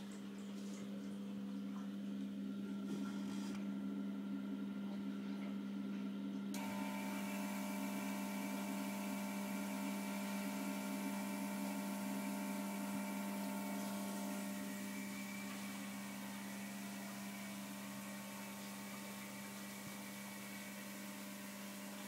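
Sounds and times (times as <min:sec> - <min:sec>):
low electrical hum: 0:00.0 - 0:22.0
high steady whines: 0:06.6 - 0:22.0.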